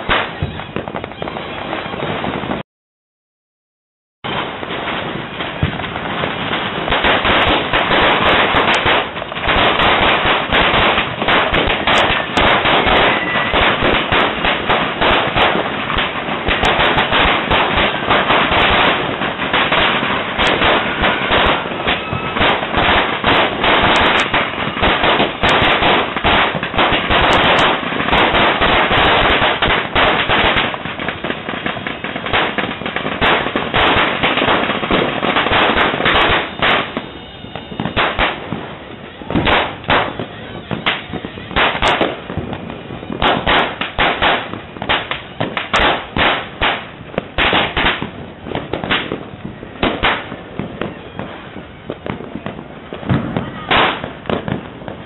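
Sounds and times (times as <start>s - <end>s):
firecrackers crackling: 0.0s - 2.6s, 4.2s - 55.0s.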